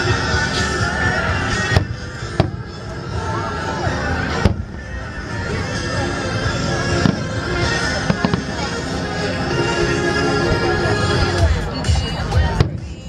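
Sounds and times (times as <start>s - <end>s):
background music: 0.0s - 13.0s
voices: 0.0s - 13.0s
fireworks bursting: 1.4s - 2.8s, 4.4s - 5.0s, 6.8s - 8.7s.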